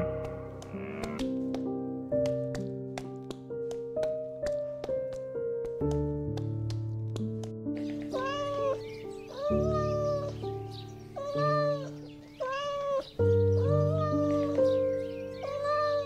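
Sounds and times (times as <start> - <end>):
piano music: 0.0 - 16.0
cat meowing: 8.1 - 10.4, 11.2 - 14.6, 15.4 - 16.0.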